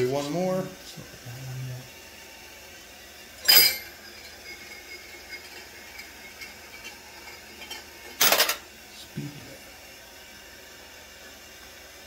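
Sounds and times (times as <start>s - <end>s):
brass cases clinking on metal: 3.4s - 3.9s.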